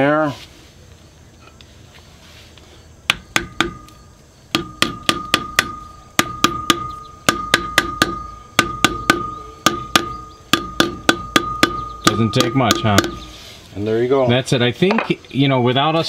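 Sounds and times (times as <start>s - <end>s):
metallic ringing: 3.4s - 13.4s
hammer tapping metal cap: 4.6s - 13.4s.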